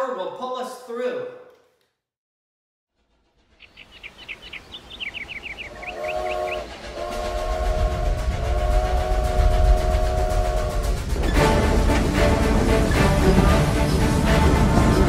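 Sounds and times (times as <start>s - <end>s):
low rumble: 3.0s - 15.0s
high chirps: 3.6s - 6.7s
steam whistle blowing: 5.6s - 13.2s.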